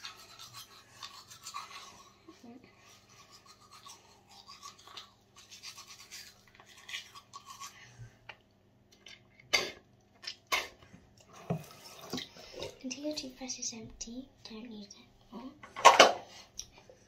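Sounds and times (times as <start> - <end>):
toothbrush scrubbing teeth: 0.0 - 8.4.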